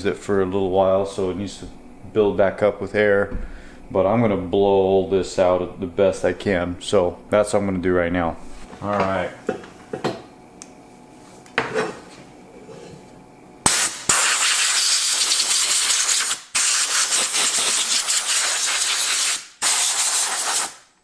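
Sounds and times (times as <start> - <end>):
compressed air blow gun hissing: 13.7 - 20.8.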